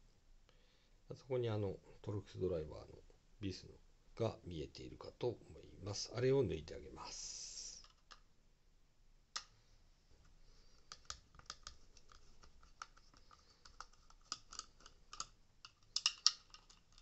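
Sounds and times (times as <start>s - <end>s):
screwdriver clicking on plastic: 10.9s - 17.0s.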